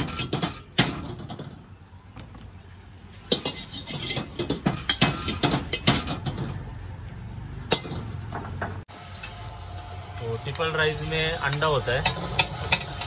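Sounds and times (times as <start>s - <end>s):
metal spatula scraping a wok: 3.0s - 6.4s, 12.0s - 13.0s.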